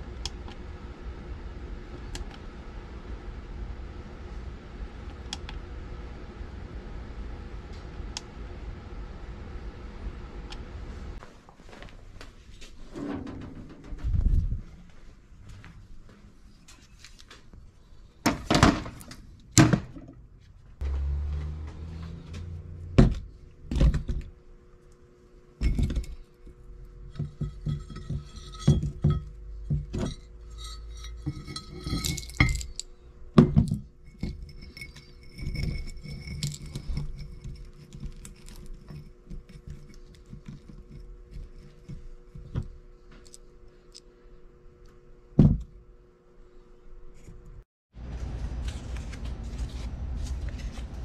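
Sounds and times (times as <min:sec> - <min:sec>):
metal clanking on steel shelf: 0:12.9 - 0:14.2
scrap metal clinking: 0:27.0 - 0:32.9, 0:34.0 - 0:40.0.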